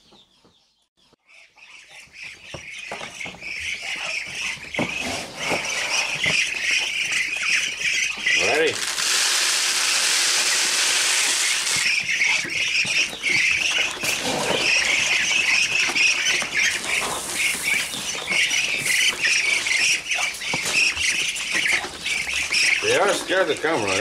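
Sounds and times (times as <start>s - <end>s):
ducklings peeping: 0.0s - 24.0s
dry feed pouring onto ground: 8.4s - 11.9s.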